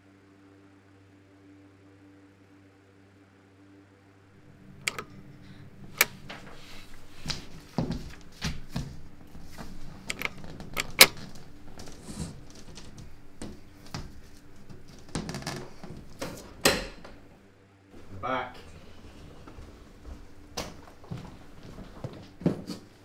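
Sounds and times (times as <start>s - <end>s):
low steady hum: 0.0s - 23.0s
clicks and taps of handling: 4.5s - 17.2s.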